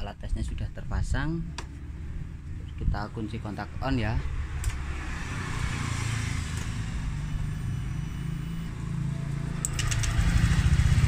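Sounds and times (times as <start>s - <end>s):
scooter engine running: 8.9s - 11.0s.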